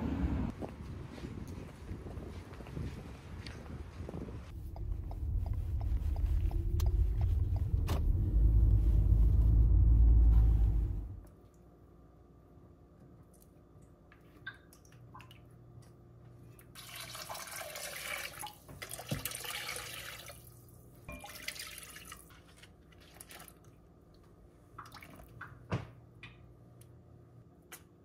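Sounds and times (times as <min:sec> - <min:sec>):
water pouring into pot: 0:16.8 - 0:20.5, 0:21.2 - 0:22.3.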